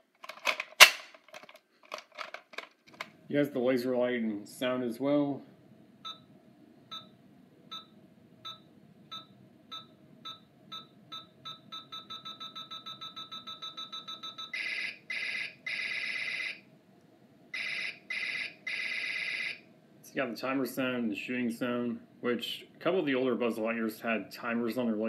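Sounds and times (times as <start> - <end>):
toy timer beeps: 8.5 - 16.5.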